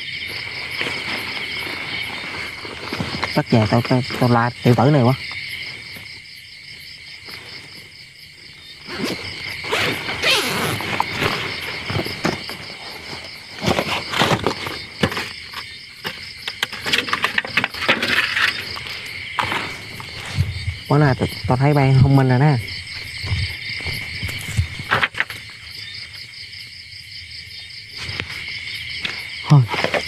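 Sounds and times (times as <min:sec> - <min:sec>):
crickets chirping: 0:00.0 - 0:30.0
hands rummaging in a bag: 0:00.3 - 0:04.2, 0:08.9 - 0:20.5.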